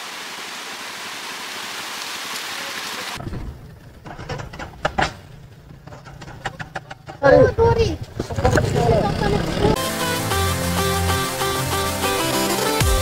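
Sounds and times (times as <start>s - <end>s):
water hissing: 0.0s - 3.2s
motorcycle engine rumbling: 3.2s - 9.8s.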